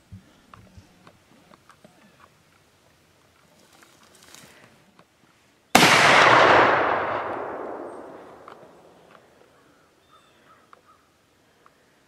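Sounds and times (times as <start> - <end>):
loud boom: 5.8 - 8.9.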